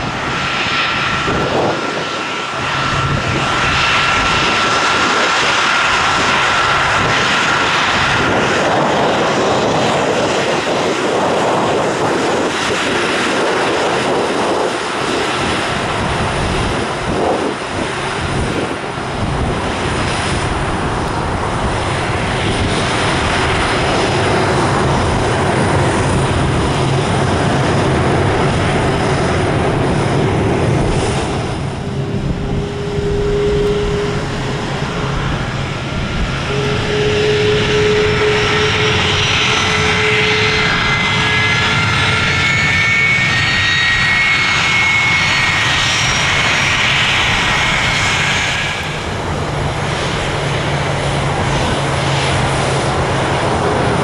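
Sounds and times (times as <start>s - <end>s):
jet engines at taxi power: 0.0s - 54.0s
high sliding whines: 24.6s - 54.0s.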